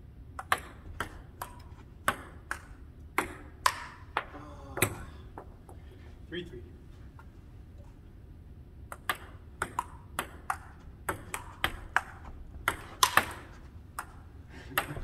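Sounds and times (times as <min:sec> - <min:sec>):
ping-pong ball bouncing: 0:00.4 - 0:04.3, 0:08.9 - 0:13.4, 0:14.0 - 0:15.0.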